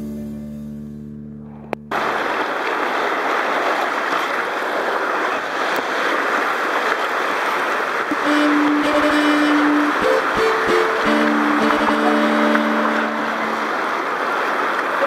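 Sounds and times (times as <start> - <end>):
music: 0.0 - 1.8, 8.5 - 12.2
rushing whitewater: 1.9 - 15.0.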